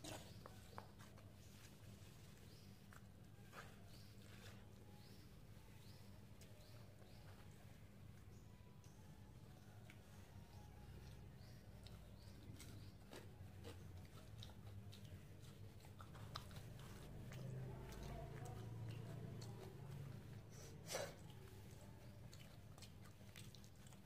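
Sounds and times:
person chewing: 11.0 - 24.0.

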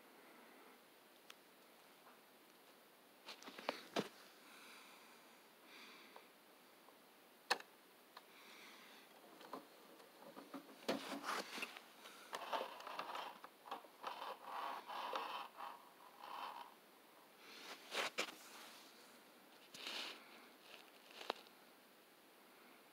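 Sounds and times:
small clicks knocks and scrapes: 9.1 - 16.8, 19.6 - 21.5.

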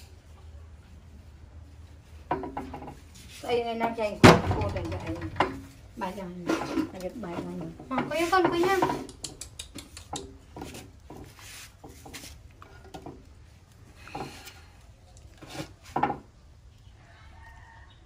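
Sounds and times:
fruit handled on wooden tabletop: 9.8 - 16.6.

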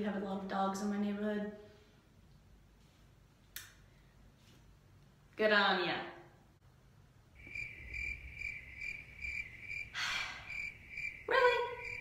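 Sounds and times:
crickets chirping: 7.3 - 12.0
short breathy sound: 9.9 - 10.5.

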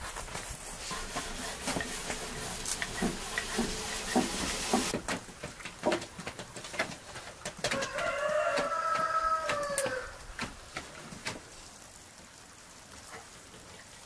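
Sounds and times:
rolling pin on wooden board: 0.8 - 5.0.

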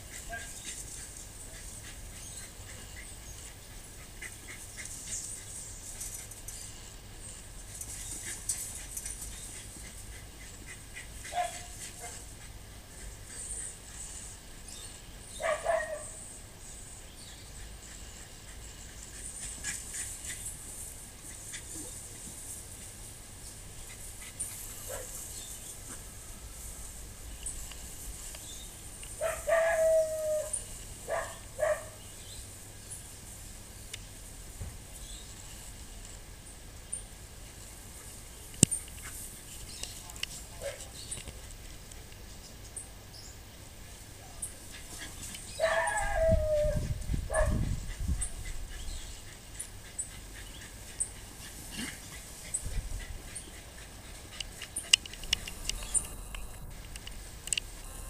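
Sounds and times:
faint high ticks: 33.9 - 34.1, 38.5 - 40.4, 53.3 - 57.9
sharp clicks: 54.4 - 57.7.

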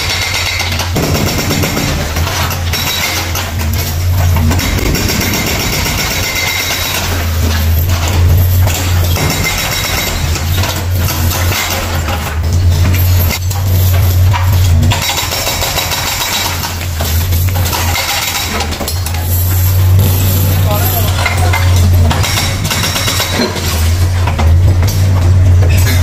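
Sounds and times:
concrete crunching and cracking: 0.7 - 26.0
diesel engine droning under load: 3.8 - 9.1.

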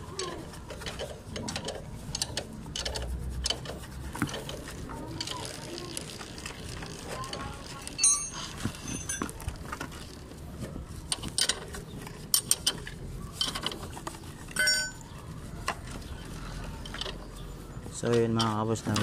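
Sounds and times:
metallic clinks: 8.0 - 9.4, 14.5 - 15.1.

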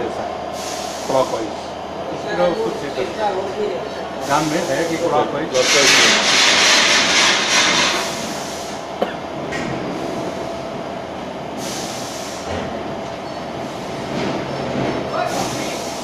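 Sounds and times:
electric pump motor hum: 4.2 - 8.9.

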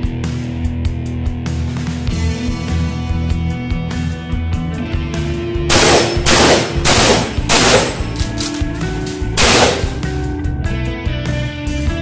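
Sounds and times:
shotgun shots echoing: 5.7 - 10.1.

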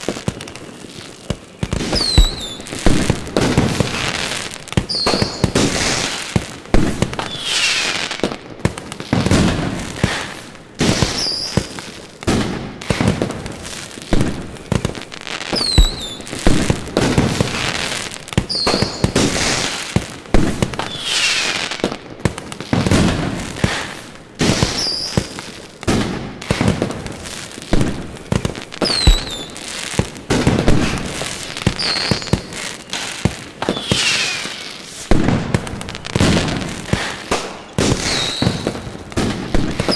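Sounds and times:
fireworks bursting: 0.0 - 39.9
falling whistles: 1.9 - 2.7, 4.9 - 5.6, 7.3 - 7.9, 11.1 - 11.7, 15.6 - 16.3, 24.7 - 25.3, 28.8 - 29.6, 31.7 - 32.5, 33.6 - 35.0, 38.0 - 38.8.

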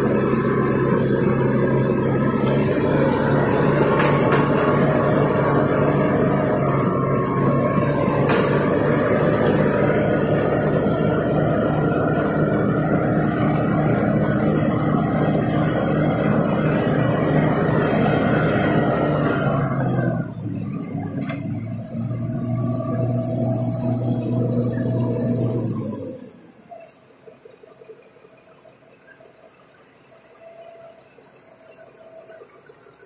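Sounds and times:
bulldozer diesel engine running: 0.0 - 33.0.

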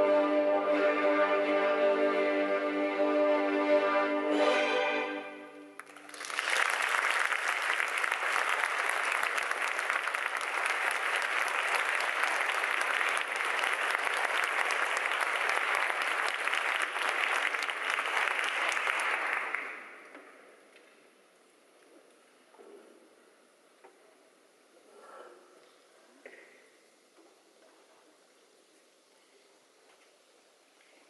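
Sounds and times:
string orchestra chord: 0.0 - 5.7
audience clapping: 5.8 - 20.1.

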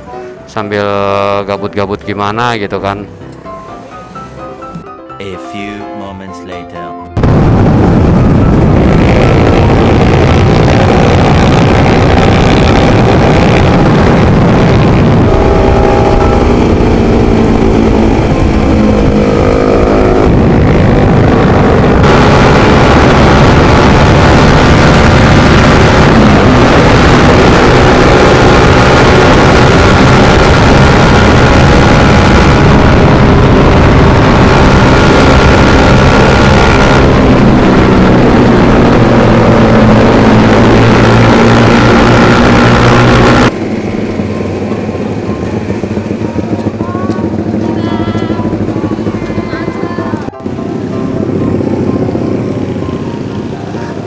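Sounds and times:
wind rushing on microphone: 7.2 - 50.4
motorcycle engine running: 7.2 - 54.0.

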